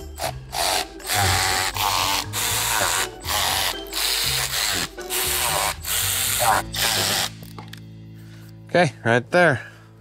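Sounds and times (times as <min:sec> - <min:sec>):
cordless power tool driving bolts: 0:00.2 - 0:07.3.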